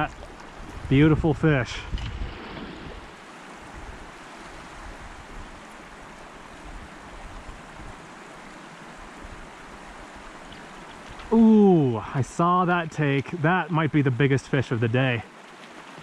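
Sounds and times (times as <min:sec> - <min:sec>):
wind rumbling on microphone: 0:00.0 - 0:08.1
flowing creek water: 0:00.0 - 0:16.0.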